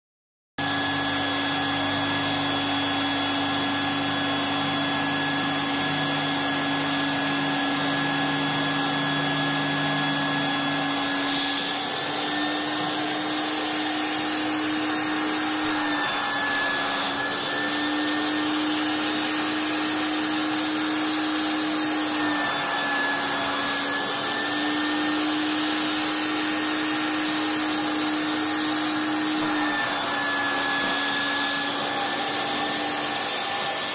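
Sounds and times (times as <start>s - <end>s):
vacuum motor running: 0.6s - 33.9s.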